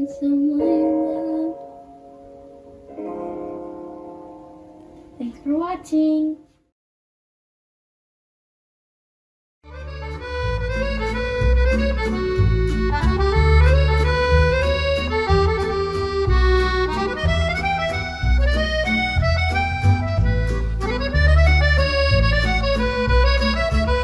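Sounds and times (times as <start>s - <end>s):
background music with beat: 9.7s - 24.0s.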